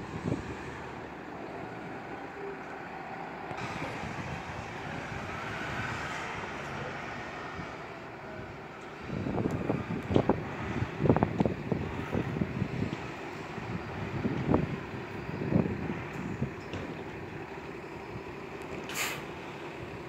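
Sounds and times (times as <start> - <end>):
wind buffeting microphone: 0.0 - 1.3, 3.5 - 17.5
bus diesel engine running: 0.0 - 20.0.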